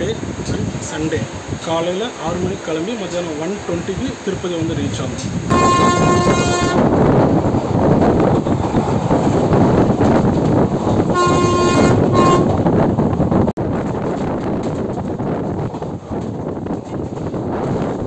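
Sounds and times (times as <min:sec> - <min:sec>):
train running noise: 0:00.0 - 0:18.0
train horn blasts: 0:05.5 - 0:06.9, 0:11.1 - 0:12.7.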